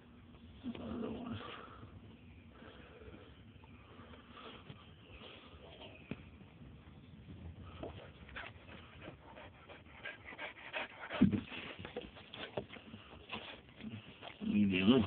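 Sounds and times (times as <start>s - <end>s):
puppies shuffling and rustling: 11.2s - 15.0s.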